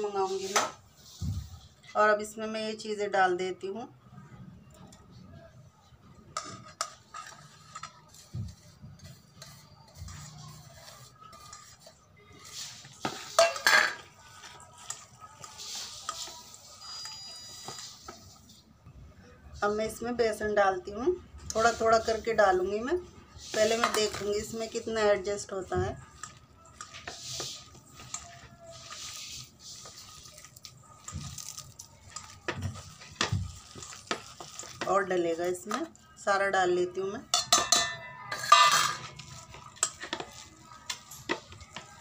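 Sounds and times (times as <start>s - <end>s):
steel bowls scraping and clinking: 6.3s - 18.4s, 23.4s - 35.7s, 37.3s - 42.0s
squishy hand-mixing: 7.0s - 13.4s, 14.0s - 18.7s, 23.2s - 35.6s, 39.0s - 42.0s
metallic clanks of bowl: 13.1s - 14.1s, 37.3s - 40.4s.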